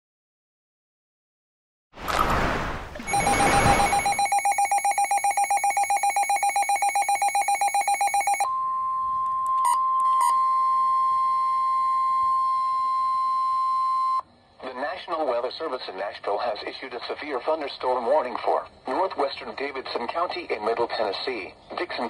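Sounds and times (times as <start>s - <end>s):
rapidly pulsing alarm beep: 3.1s - 8.5s
steady single-pitch alarm tone: 3.1s - 14.2s.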